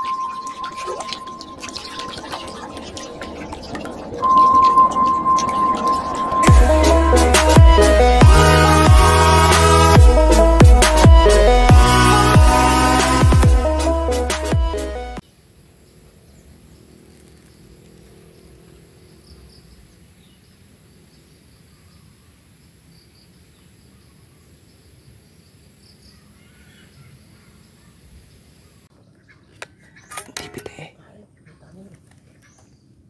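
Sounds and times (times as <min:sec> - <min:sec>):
insect hum: 0:15.2 - 0:33.0.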